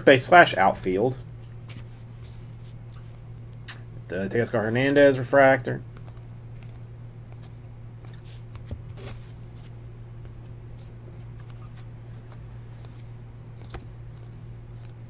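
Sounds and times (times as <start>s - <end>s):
steady low hum: 0.0s - 15.0s
cards sliding and flicking: 5.9s - 15.0s.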